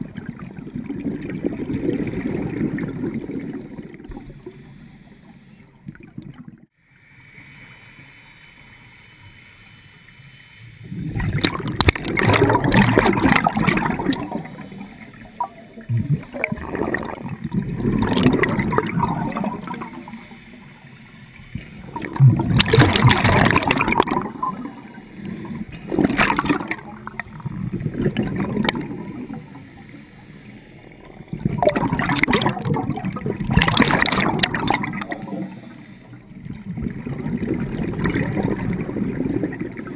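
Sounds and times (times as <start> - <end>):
underwater air bubbles: 0.0 - 6.8, 10.7 - 39.9
underwater hiss: 6.8 - 37.0.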